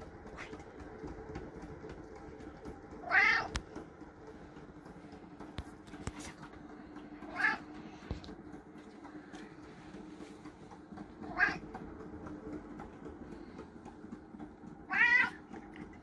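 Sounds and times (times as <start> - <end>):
cat meowing: 3.0 - 3.5, 14.9 - 15.4.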